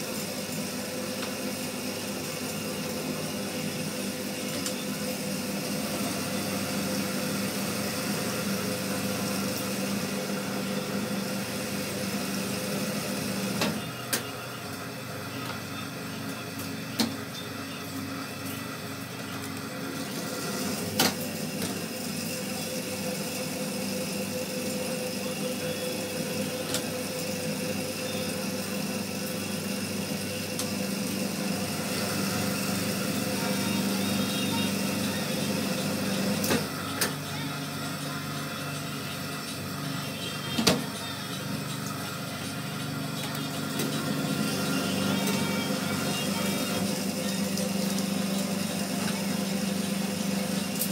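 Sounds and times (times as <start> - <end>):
electric motor hum: 19.6 - 50.9.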